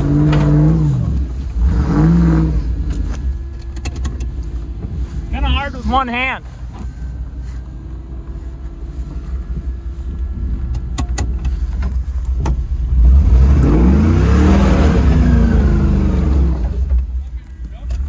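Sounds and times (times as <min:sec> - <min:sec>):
truck engine revving: 0:00.0 - 0:06.1, 0:07.9 - 0:17.1
man talking: 0:05.3 - 0:06.5
engine knocks: 0:09.5 - 0:13.7.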